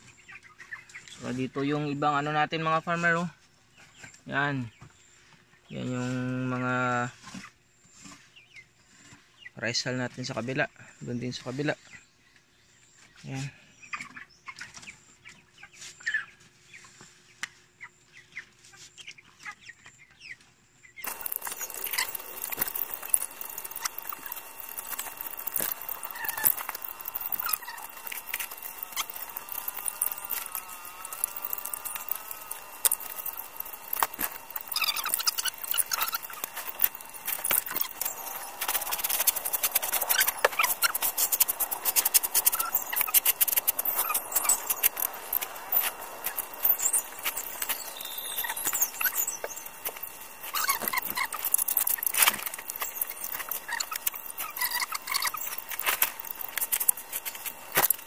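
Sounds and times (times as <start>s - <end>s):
wavering squeal: 21.0s - 58.0s.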